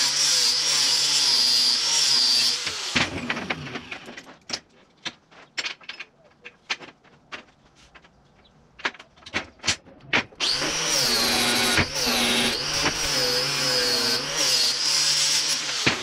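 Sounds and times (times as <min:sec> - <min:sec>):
angle grinder on steel: 0:00.0 - 0:04.1, 0:10.4 - 0:16.0.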